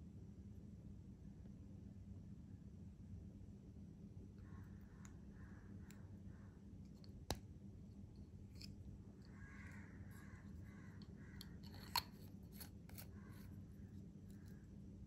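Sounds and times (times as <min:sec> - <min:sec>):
low room hum: 0:00.0 - 0:15.0
pen assembly clicks: 0:11.4 - 0:13.1.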